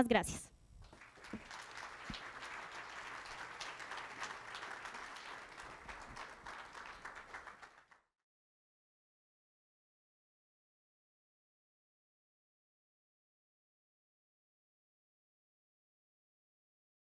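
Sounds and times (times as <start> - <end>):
audience applauding: 0.8 - 8.1.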